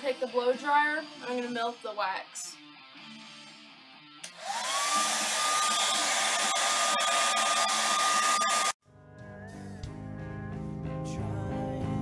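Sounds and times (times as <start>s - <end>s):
hair dryer blowing: 4.2s - 8.8s.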